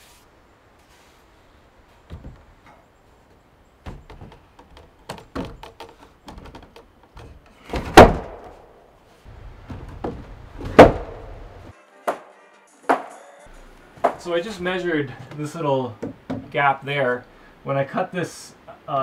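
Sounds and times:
log knocking and scraping: 2.0s - 8.6s, 9.2s - 11.5s, 14.0s - 16.6s
loud wooden thuds: 2.1s - 2.5s, 3.8s - 12.2s, 16.0s - 16.6s.

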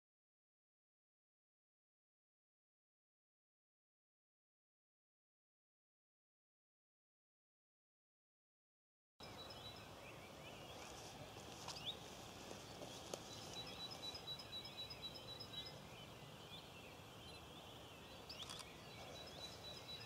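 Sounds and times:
distant birds calling: 9.2s - 20.0s
sharp clicks: 18.3s - 18.8s.

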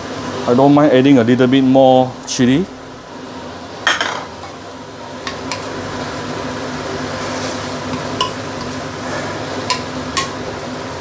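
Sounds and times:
leaves sizzling in a pan: 5.2s - 11.0s.

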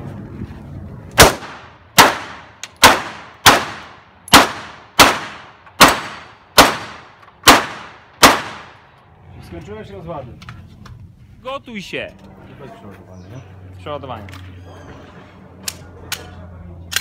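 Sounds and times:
pistol shots: 1.2s - 8.8s.

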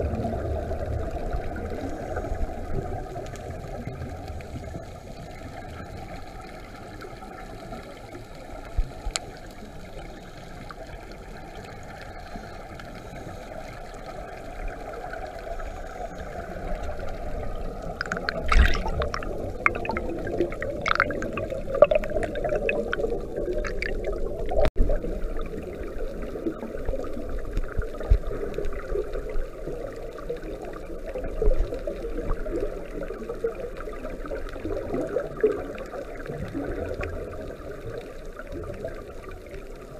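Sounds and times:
muffled underwater rush: 0.0s - 39.9s
regulator bubbles bursting: 16.1s - 39.9s.

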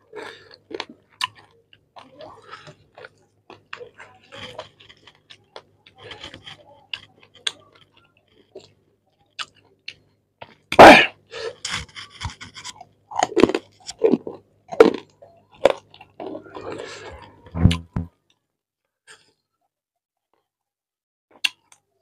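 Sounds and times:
person chewing food: 0.0s - 10.8s, 11.4s - 18.0s
loud sudden mouth sound: 17.5s - 18.1s.

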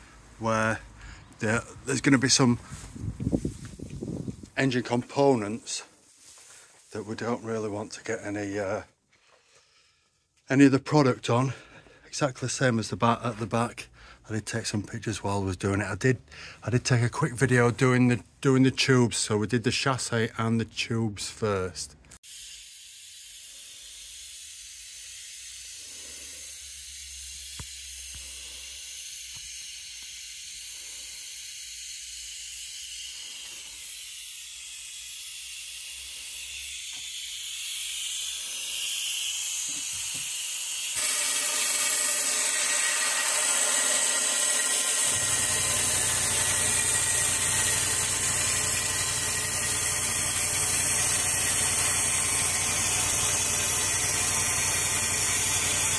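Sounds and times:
spray gun hissing: 32.8s - 55.9s.

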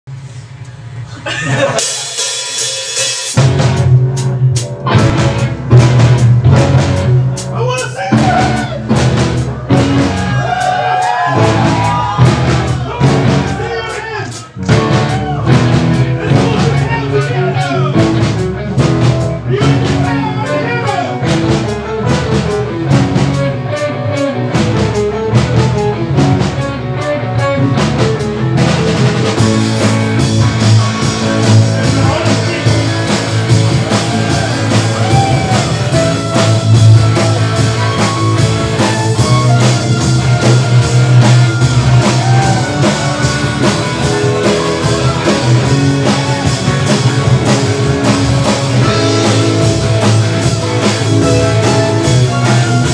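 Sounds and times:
jazz-rock band playing: 1.5s - 52.9s
electric violin: 22.1s - 29.8s, 33.9s - 52.9s.

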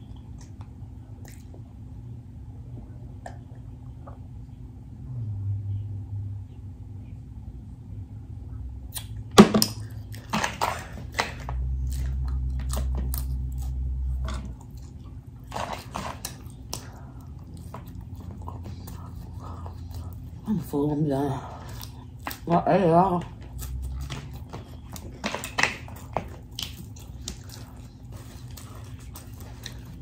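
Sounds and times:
wet chewing and lip smacks: 0.0s - 1.8s, 9.8s - 20.8s, 23.3s - 30.0s
low steady hum: 0.0s - 30.0s.

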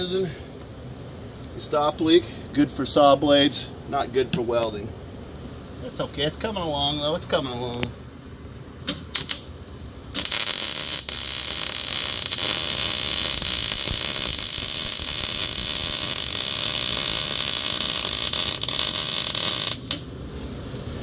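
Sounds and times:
welder arc crackling and sizzling: 8.9s - 20.1s.

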